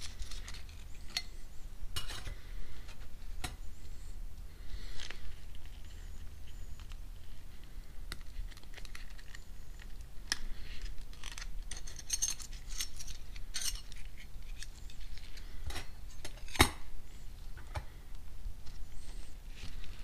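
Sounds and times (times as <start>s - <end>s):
metal plates clinking and scraping: 11.7s - 14.1s.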